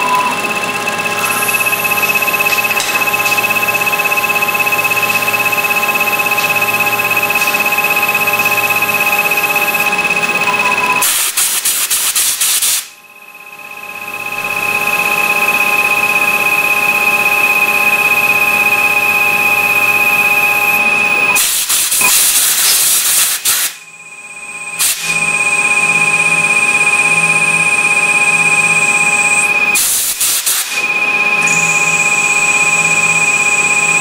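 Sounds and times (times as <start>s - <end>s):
lathe whining: 0.0s - 10.8s
compressed air blasts: 21.4s - 23.8s, 29.8s - 30.8s.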